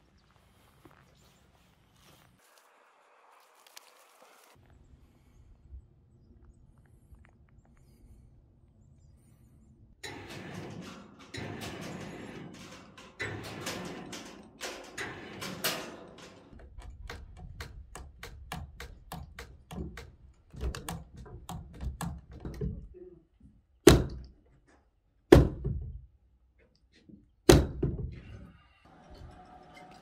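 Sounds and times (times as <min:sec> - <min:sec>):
heavy knocks on log timbers: 0:23.8 - 0:24.3, 0:25.3 - 0:25.8.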